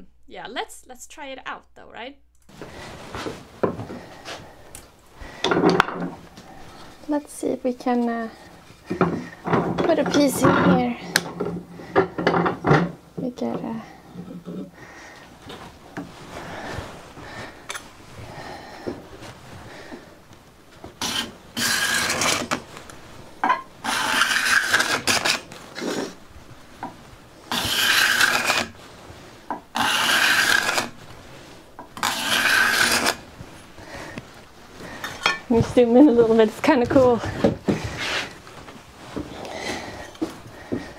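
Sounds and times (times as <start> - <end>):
card scraper scraping wood: 21.0 - 22.6, 23.8 - 26.2, 27.5 - 28.8, 29.8 - 31.0, 32.0 - 33.2.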